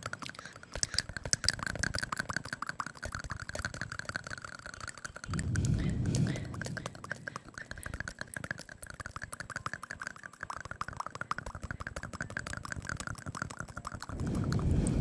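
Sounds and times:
wet tongue and lip clicks: 0:00.0 - 0:15.0
low rushing sound: 0:05.3 - 0:07.3, 0:14.1 - 0:15.0.

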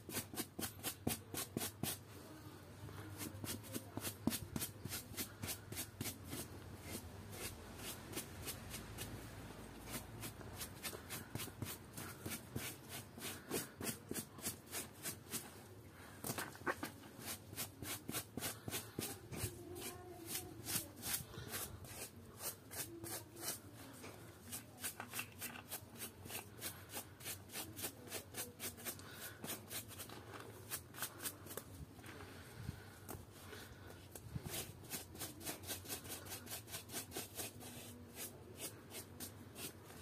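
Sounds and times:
scrub brush scrubbing wet toy: 0:16.3 - 0:31.6, 0:34.5 - 0:40.0.

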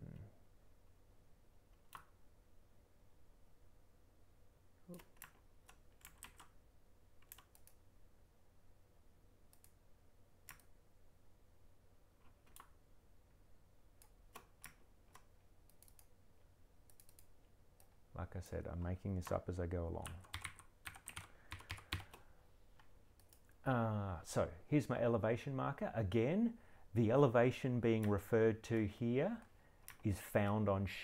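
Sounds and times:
low steady hum: 0:00.0 - 0:31.0
keyboard and mouse clicks: 0:01.7 - 0:02.2, 0:04.9 - 0:06.6, 0:07.2 - 0:07.8, 0:09.5 - 0:09.8, 0:10.4 - 0:10.8, 0:12.2 - 0:12.8, 0:14.0 - 0:16.1, 0:16.8 - 0:18.0, 0:20.0 - 0:23.6, 0:29.4 - 0:30.1.

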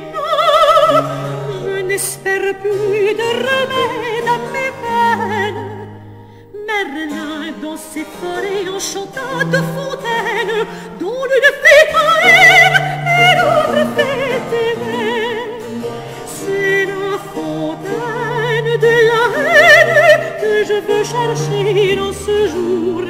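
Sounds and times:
opera voices singing with vibrato: 0:06.7 - 0:23.0.

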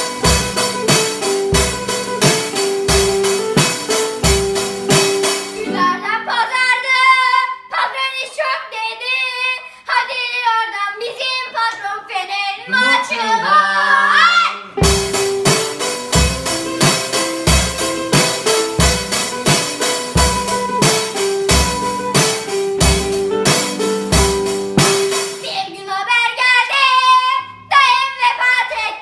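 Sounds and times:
drum kit: 0:00.0 - 0:05.9, 0:14.8 - 0:25.5
digital piano: 0:00.0 - 0:06.4, 0:14.7 - 0:25.7
strummed string instrument: 0:00.0 - 0:06.4, 0:14.8 - 0:25.4
child singing: 0:05.6 - 0:14.7, 0:25.4 - 0:29.0.

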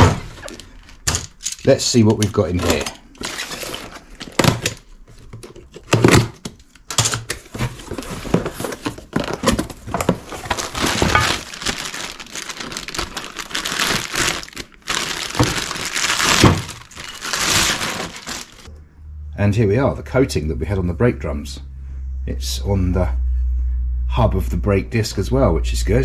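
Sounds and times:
knocks and rustles of box handling: 0:07.2 - 0:18.6
plastic bag crinkling: 0:07.8 - 0:18.7.

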